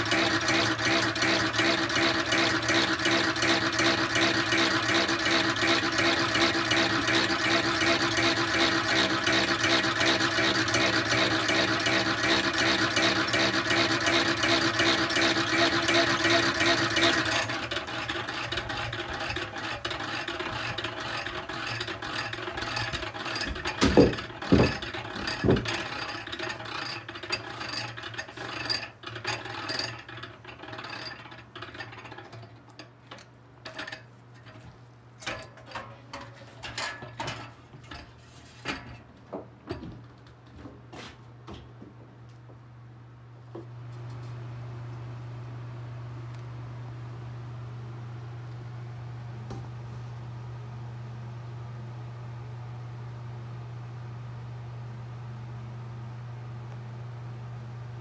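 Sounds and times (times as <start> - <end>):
honey extractor gear drive whirring: 0.0 - 38.9.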